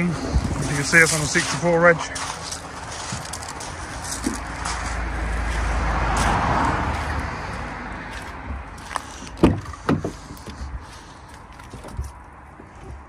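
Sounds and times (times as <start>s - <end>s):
vehicle passing: 0.0s - 13.0s.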